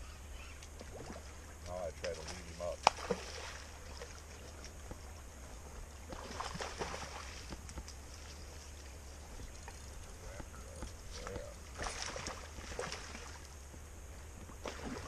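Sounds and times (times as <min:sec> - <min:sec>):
faint running water: 0:00.3 - 0:15.0
water splash: 0:00.8 - 0:04.3, 0:06.1 - 0:07.6, 0:11.7 - 0:13.4, 0:14.6 - 0:15.0
steady low rumble: 0:07.4 - 0:14.6.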